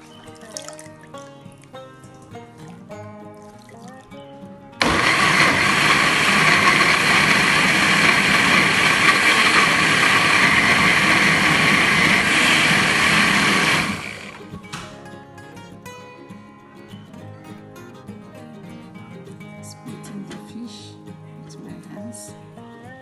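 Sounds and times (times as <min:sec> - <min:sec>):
blender running: 0:04.8 - 0:14.6.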